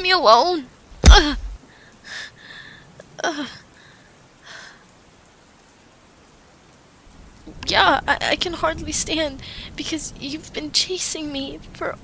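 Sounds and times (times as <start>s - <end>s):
steady rain: 0.0s - 12.0s
sharp thump: 1.0s - 1.6s
woman groaning: 1.0s - 1.6s
woman breathing heavily: 1.0s - 2.9s.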